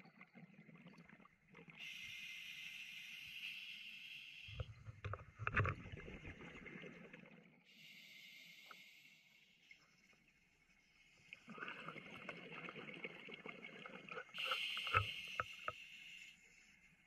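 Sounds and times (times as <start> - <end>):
regulator inhalation hiss: 1.8 - 4.6, 7.7 - 9.6, 14.4 - 16.8.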